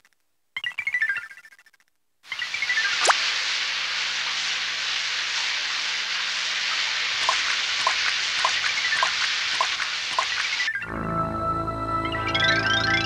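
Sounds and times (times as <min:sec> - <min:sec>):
heavy rain hiss: 0:02.3 - 0:10.7.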